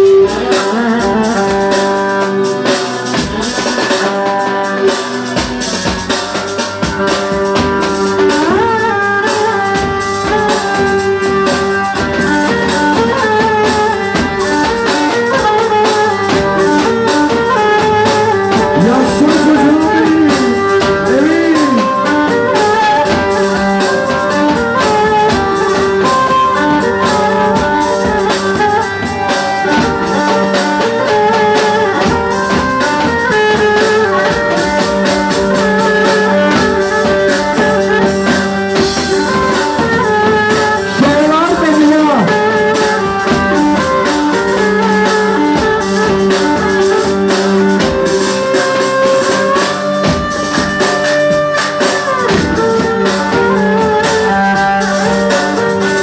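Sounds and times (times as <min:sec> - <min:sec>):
bass drum beating: 0:04.5 - 0:48.2
melody over steady drone: 0:18.4 - 0:22.5.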